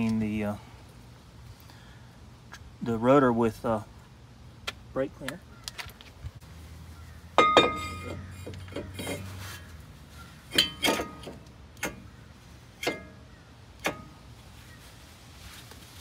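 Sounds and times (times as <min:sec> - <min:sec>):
metal brake rotor clanking: 0:07.4 - 0:09.7, 0:10.4 - 0:14.3.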